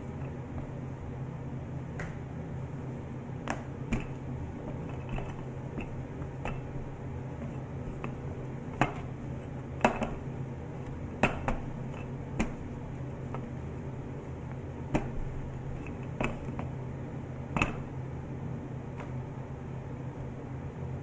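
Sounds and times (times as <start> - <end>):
steady low hum: 0.0 - 21.0
rolling pin knocking on board: 3.5 - 6.9, 7.5 - 10.3, 11.2 - 12.7, 14.9 - 16.8, 17.5 - 17.9.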